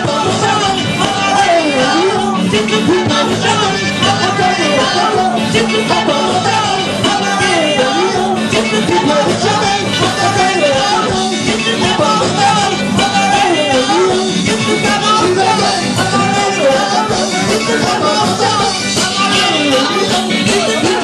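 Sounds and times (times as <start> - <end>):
live ska band playing: 0.0 - 21.0.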